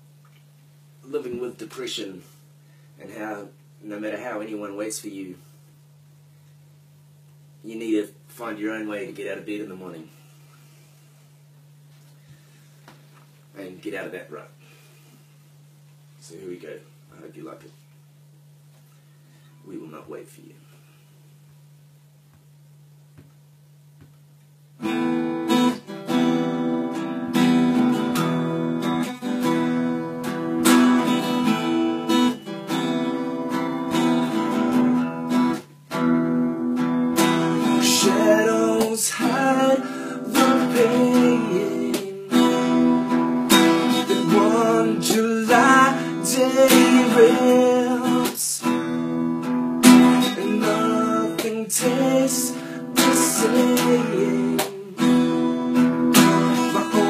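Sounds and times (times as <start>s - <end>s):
acoustic guitar strumming: 24.8s - 57.0s.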